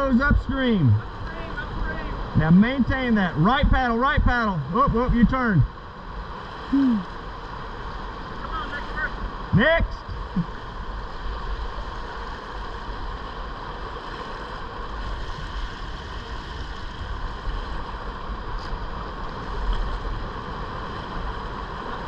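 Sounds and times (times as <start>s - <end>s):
river current rushing: 0.0s - 22.0s
wind rumbling on microphone: 6.0s - 22.0s.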